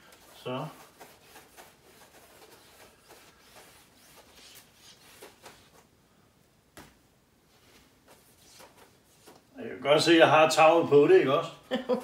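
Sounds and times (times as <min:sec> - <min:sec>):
cloth rubbing glass: 0:00.0 - 0:05.9, 0:07.5 - 0:09.5.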